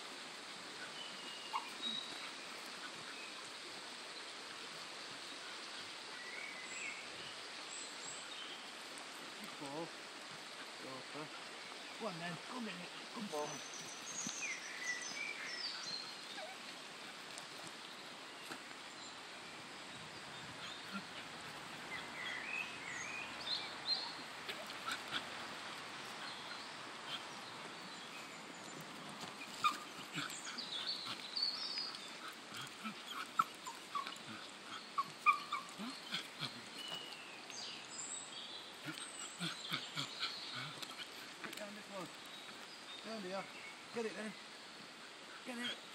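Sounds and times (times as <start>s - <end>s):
stream rushing: 0.0s - 45.9s
dog whining: 32.6s - 36.3s.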